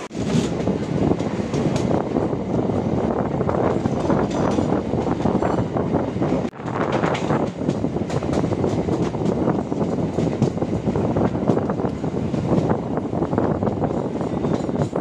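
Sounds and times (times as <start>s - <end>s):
train clatter: 0.0s - 15.0s
train wheels rumbling on rails: 0.0s - 15.0s.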